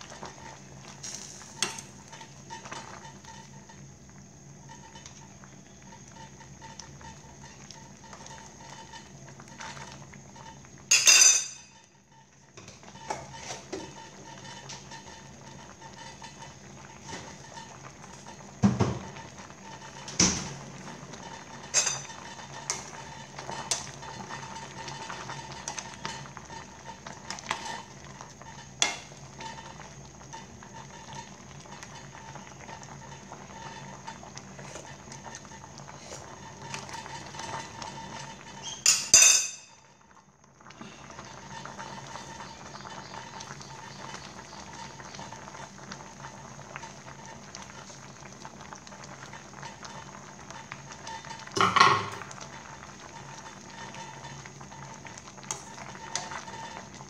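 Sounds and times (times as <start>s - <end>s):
soup boiling in a pot: 0.0s - 57.0s
metal spoon clinking against pot: 10.9s - 11.6s, 21.7s - 22.1s, 38.9s - 39.7s.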